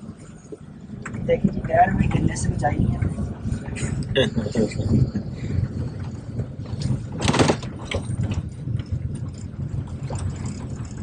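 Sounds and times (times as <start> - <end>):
road and engine rumble: 0.0 - 11.0
loud car jolt: 6.9 - 9.2.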